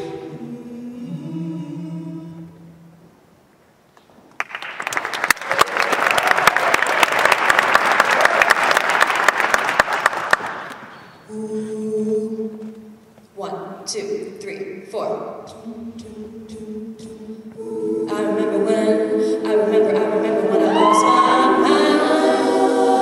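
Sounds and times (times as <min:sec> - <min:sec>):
audience applause: 0:04.4 - 0:10.9
female a cappella chord: 0:15.5 - 0:23.0.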